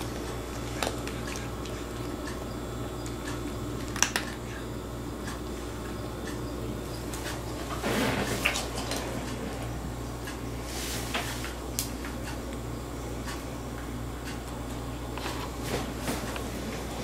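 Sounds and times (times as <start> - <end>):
cats eating dry kibble: 0.0 - 4.8
steady low hum: 0.0 - 17.0.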